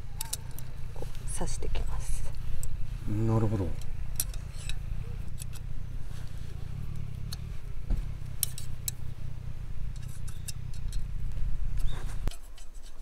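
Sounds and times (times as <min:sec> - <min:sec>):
steady low rumble: 0:00.0 - 0:12.3
metal rods clicking: 0:08.4 - 0:09.1, 0:09.9 - 0:11.2.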